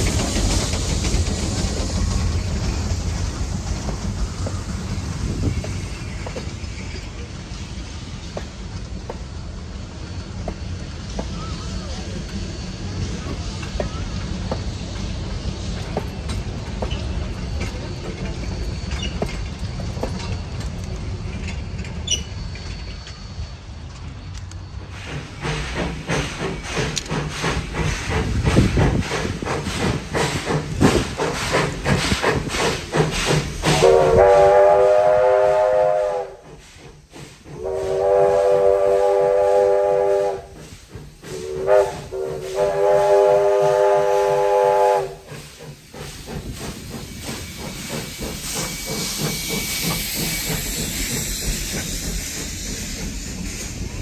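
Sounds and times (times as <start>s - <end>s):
steam hissing: 0.0s - 54.0s
steam locomotive exhaust chuffing: 0.0s - 54.0s
steam whistle blasts: 33.6s - 36.4s, 37.5s - 40.7s, 41.3s - 45.4s.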